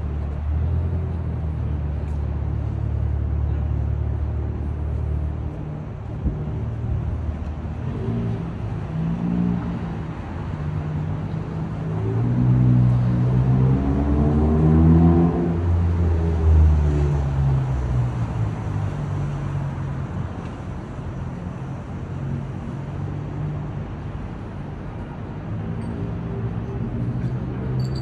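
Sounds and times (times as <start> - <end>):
steady traffic rumble: 0.0 - 28.0
vehicle engine passing close: 11.6 - 18.2.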